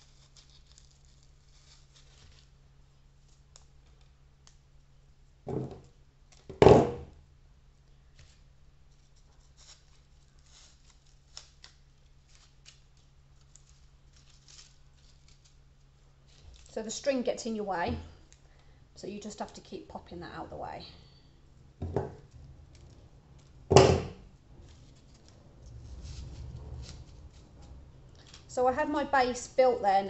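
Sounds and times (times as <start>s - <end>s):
dried flowers crackling and rustling: 0.0s - 4.5s, 8.8s - 17.6s, 22.2s - 30.0s
thumps: 23.6s - 24.2s.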